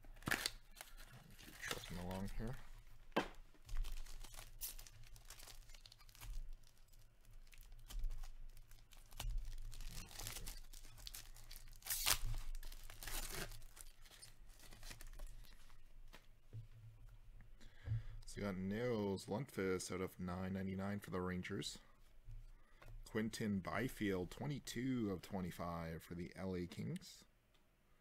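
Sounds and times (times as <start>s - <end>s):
wrapper tearing and crinkling: 0.1s - 2.6s, 3.6s - 15.6s.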